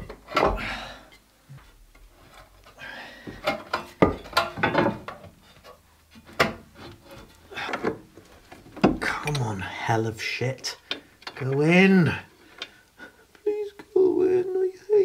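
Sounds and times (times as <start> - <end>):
wood and metal knocking and scraping: 0.0 - 0.8, 1.5 - 9.7, 10.7 - 12.8.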